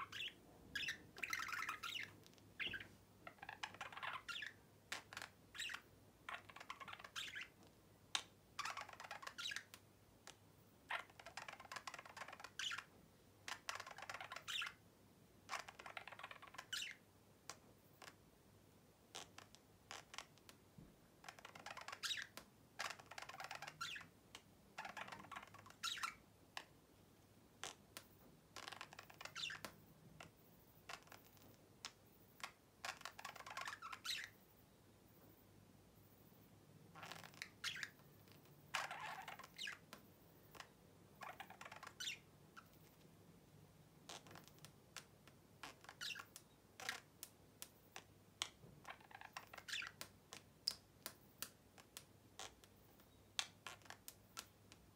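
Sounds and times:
budgerigar chattering and warbling: 0.0s - 7.5s.

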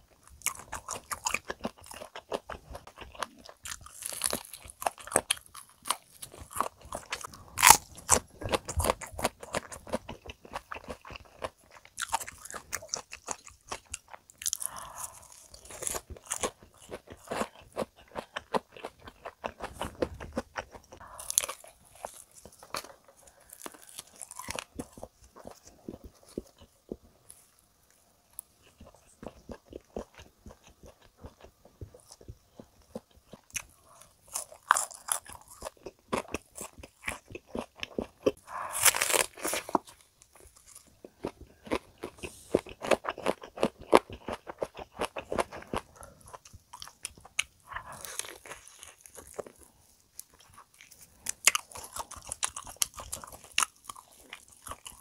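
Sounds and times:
crunching and chewing fried food: 0.0s - 55.0s.

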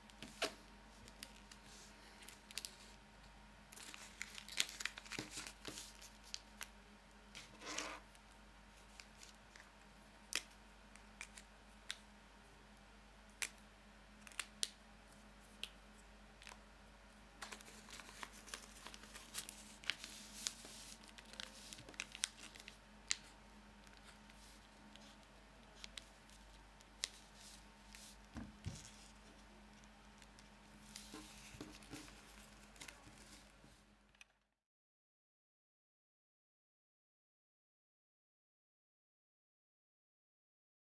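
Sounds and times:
paper rustling: 3.8s - 6.4s, 17.4s - 23.3s.

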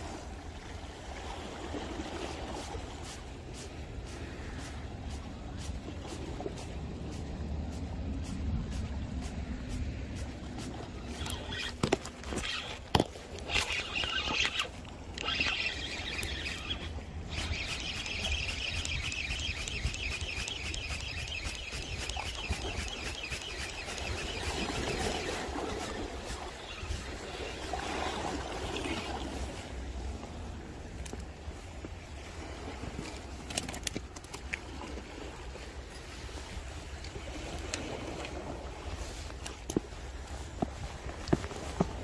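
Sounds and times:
constant low rumble: 0.0s - 42.0s
spinning reel whirring: 10.2s - 28.1s
sharp clicks: 11.1s - 26.0s.

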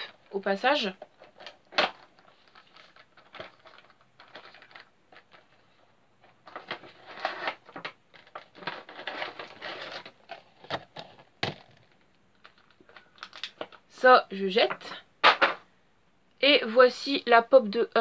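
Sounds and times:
cardboard and plastic rustling: 0.0s - 13.9s.

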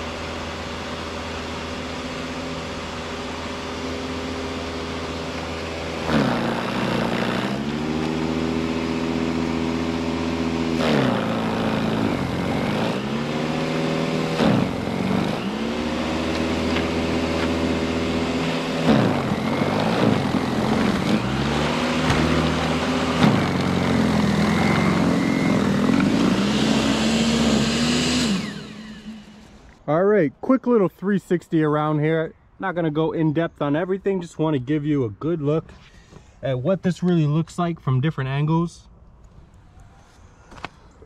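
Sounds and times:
electric snow blower whining: 0.0s - 29.8s.

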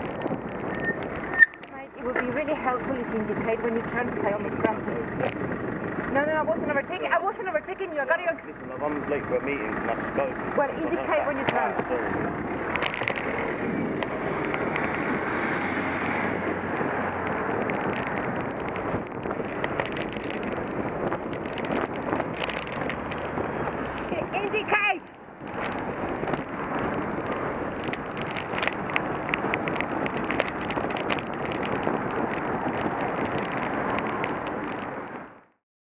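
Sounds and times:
wind on microphone: 0.0s - 7.1s, 11.6s - 35.4s
bicycle road noise: 0.0s - 35.6s
small clicks and rattles: 12.6s - 15.1s, 17.2s - 23.4s, 25.4s - 35.0s.

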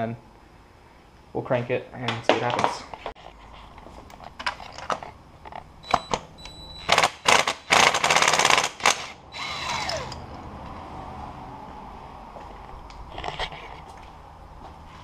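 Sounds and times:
power tool winding down whine: 8.9s - 10.2s.

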